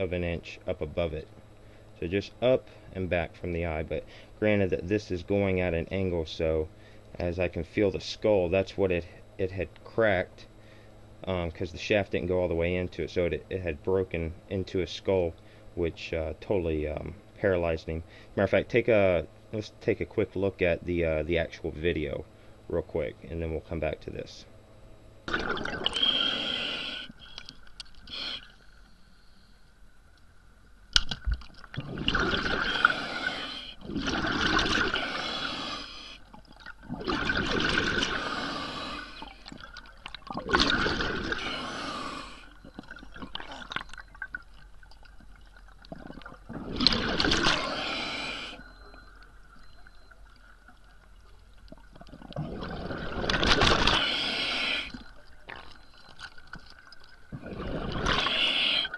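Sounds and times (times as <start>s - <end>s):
faint steady tone: 0.0s - 58.9s
underwater bubbling exhaust: 25.3s - 28.6s, 31.3s - 58.9s.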